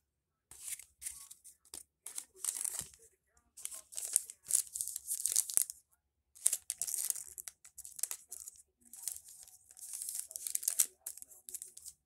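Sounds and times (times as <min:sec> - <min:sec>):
wrappers and cards crinkling: 0:00.5 - 0:01.5, 0:02.1 - 0:03.0, 0:03.6 - 0:05.8, 0:06.4 - 0:12.0.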